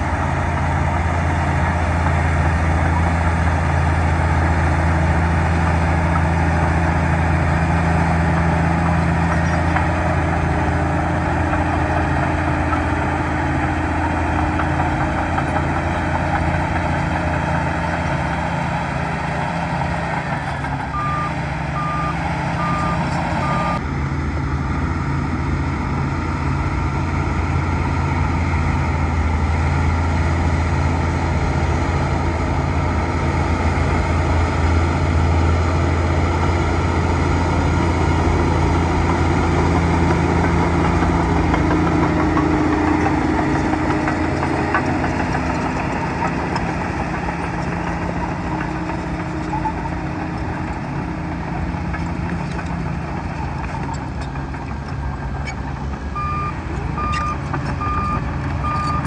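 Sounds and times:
bulldozer diesel engine droning: 0.0 - 59.0
reverse alarm beeping: 20.9 - 23.8.

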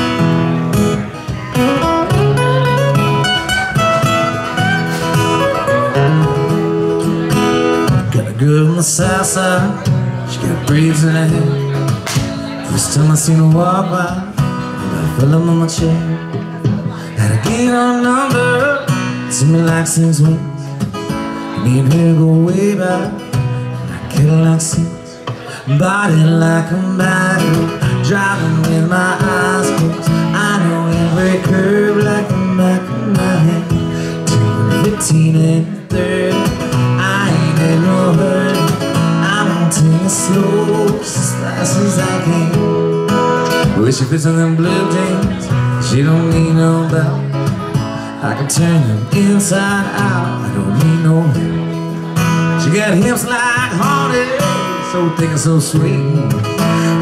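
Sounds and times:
acoustic guitar strummed: 0.0 - 57.0.

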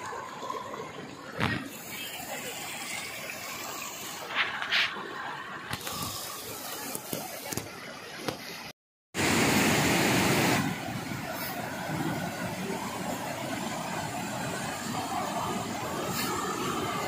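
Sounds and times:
river rapids rushing: 9.2 - 17.0.

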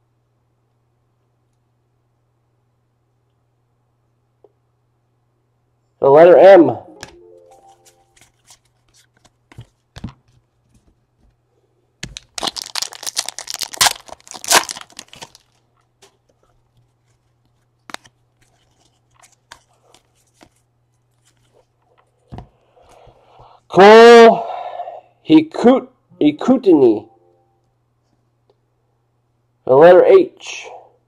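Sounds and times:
wrapper ripping and crinkling: 12.0 - 15.7.

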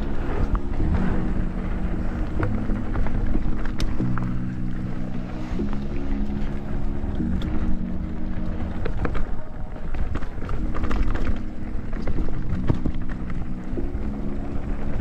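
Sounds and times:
background music: 0.0 - 15.0
bike rattling over bumps: 0.0 - 15.0
wind rumbling on microphone: 0.0 - 15.0.

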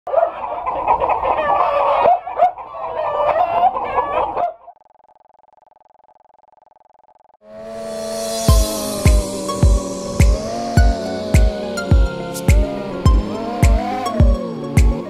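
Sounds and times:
chickens clucking and squawking: 0.1 - 4.7.

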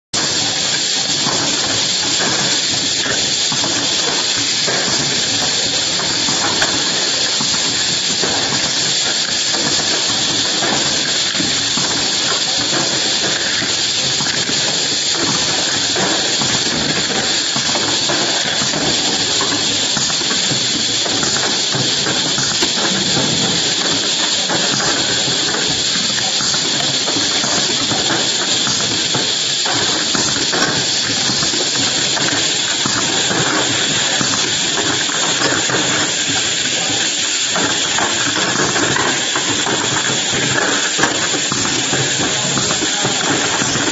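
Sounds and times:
machinery air hiss: 0.2 - 43.9.

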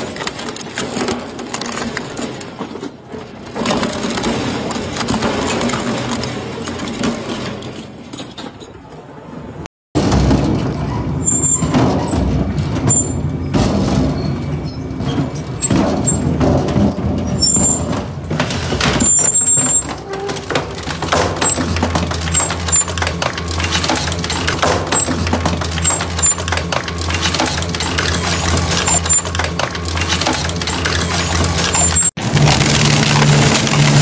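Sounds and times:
shredder crushing metal drums: 0.0 - 8.0, 10.0 - 34.0.

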